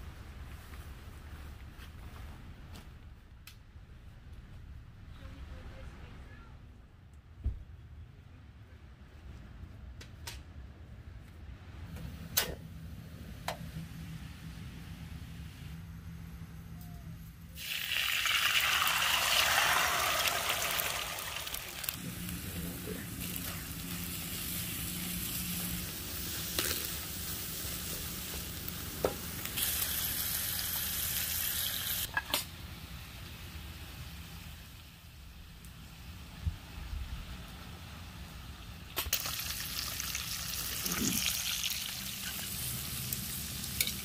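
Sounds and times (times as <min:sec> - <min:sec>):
eggs sizzling in a pan: 0:17.6 - 0:32.1, 0:39.1 - 0:44.0.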